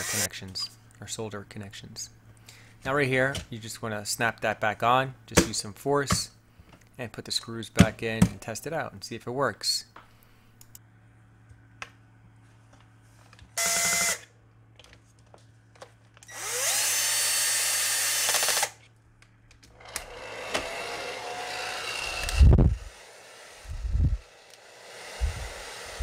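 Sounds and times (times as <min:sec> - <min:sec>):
cordless drill driving screws: 0:00.0 - 0:00.3, 0:13.6 - 0:14.3, 0:16.2 - 0:18.8, 0:19.8 - 0:26.0
hair dryer running: 0:19.9 - 0:26.0.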